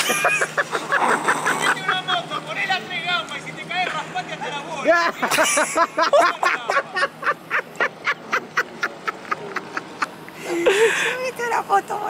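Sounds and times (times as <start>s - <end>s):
person laughing hard: 0.0s - 2.1s, 4.9s - 11.2s.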